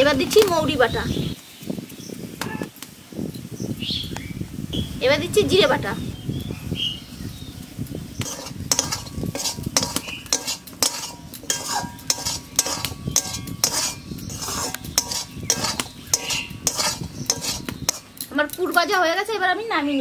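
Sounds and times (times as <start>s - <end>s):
metal spatula scraping a pan: 8.2s - 18.8s.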